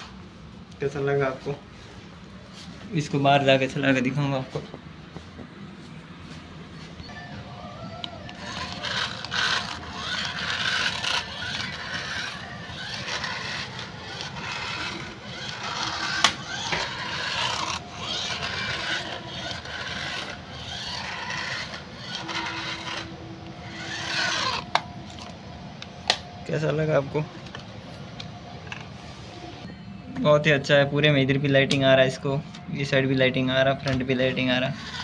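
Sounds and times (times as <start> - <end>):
toy car motor whirring: 7.7 - 25.3, 34.4 - 35.0
wheels scraping on tiled floor: 7.8 - 25.3, 34.2 - 35.0.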